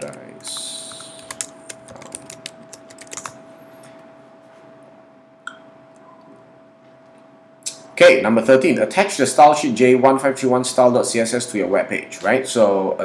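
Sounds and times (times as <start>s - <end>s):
computer keyboard typing: 0.0s - 3.4s
faint steady hum: 0.0s - 13.0s.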